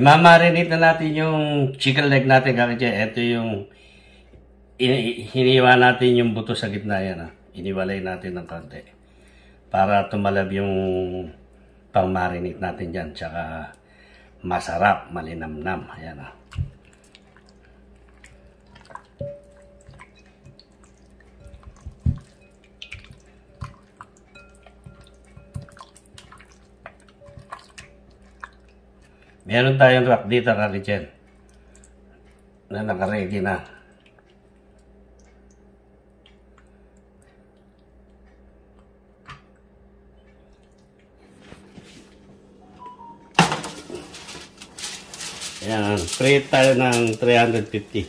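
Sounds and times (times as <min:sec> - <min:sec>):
wet squelching of raw chicken: 0:16.4 - 0:29.4
metal rack and tray clattering: 0:43.4 - 0:48.0.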